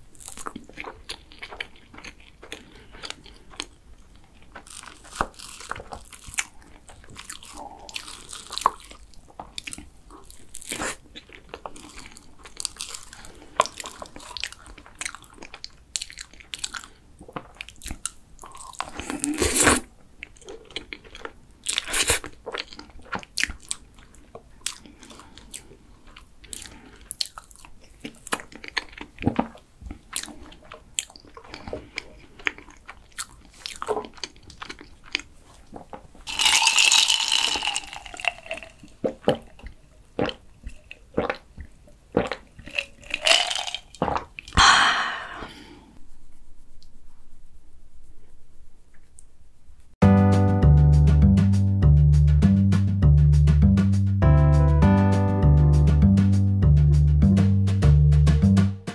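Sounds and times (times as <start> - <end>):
chewing and wet mouth sounds: 0.0 - 45.7.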